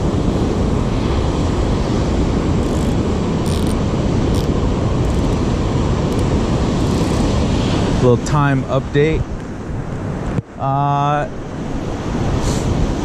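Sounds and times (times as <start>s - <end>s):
breaking surf: 0.0s - 10.2s
wind buffeting microphone: 0.0s - 10.6s, 11.3s - 13.0s.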